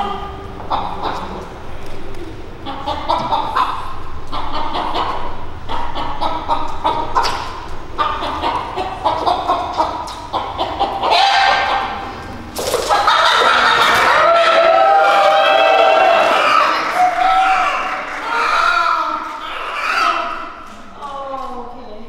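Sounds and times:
chicken clucking and squawking: 0:00.0 - 0:01.7, 0:02.4 - 0:20.7.

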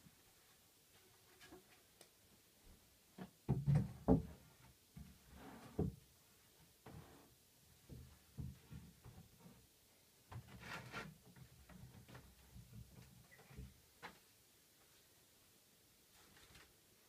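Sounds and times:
wooden knocks and thuds: 0:03.2 - 0:05.2.

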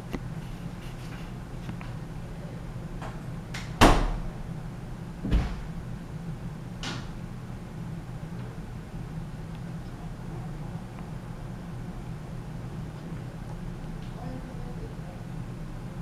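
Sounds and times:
ceiling fan humming: 0:00.0 - 0:16.0
sharp knocks: 0:05.2 - 0:05.7.

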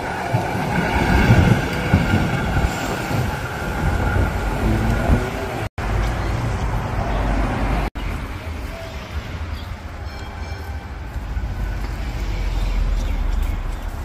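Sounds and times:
wind on microphone: 0:00.0 - 0:05.7
street traffic: 0:00.0 - 0:14.0.

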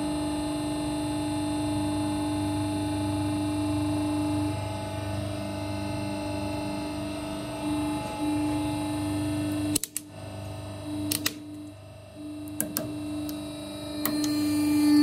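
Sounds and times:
hydraulic press motor hum: 0:09.5 - 0:15.0.

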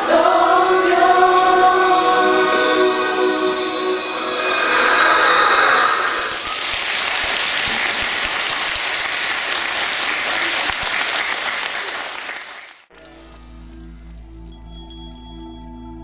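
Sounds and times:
audience applauding: 0:06.1 - 0:12.9.

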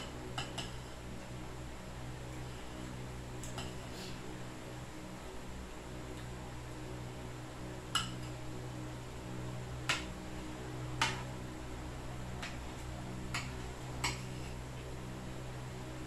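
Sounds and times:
steady low hum: 0:00.0 - 0:16.0
cutlery clicking on plates: 0:13.3 - 0:14.4.

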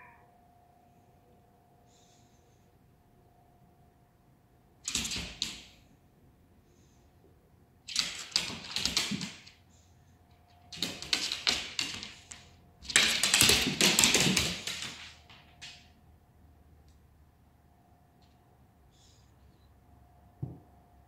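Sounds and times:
dog claws skittering on hard floor: 0:04.9 - 0:05.8, 0:07.9 - 0:09.6, 0:10.7 - 0:15.9.

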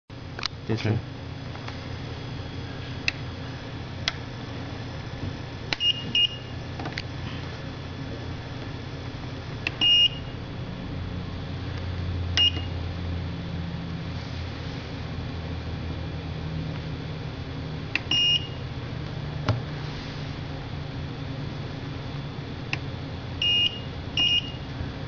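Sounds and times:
low hum: 0:00.1 - 0:25.0
control unit beeping: 0:05.8 - 0:06.6, 0:09.7 - 0:10.4, 0:12.4 - 0:12.8, 0:18.0 - 0:18.6, 0:23.4 - 0:24.6.

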